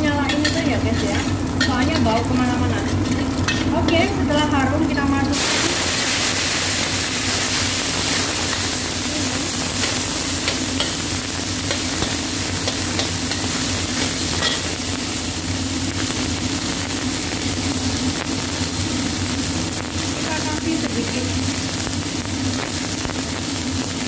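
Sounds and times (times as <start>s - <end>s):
exhaust fan humming: 0.0s - 24.0s
vegetables sizzling in hot oil: 0.0s - 24.0s
metal spatula scraping a wok: 0.2s - 2.2s, 9.8s - 14.8s.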